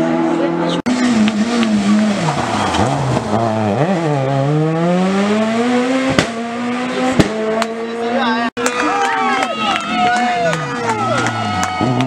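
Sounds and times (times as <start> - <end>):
rally car engine revving: 0.0 - 8.8, 9.5 - 12.0.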